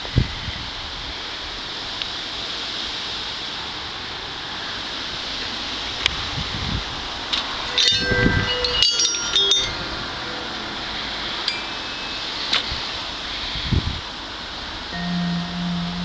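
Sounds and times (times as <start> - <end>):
background hiss: 0.0 - 16.0
vibraphone notes: 7.8 - 9.9, 15.0 - 16.0.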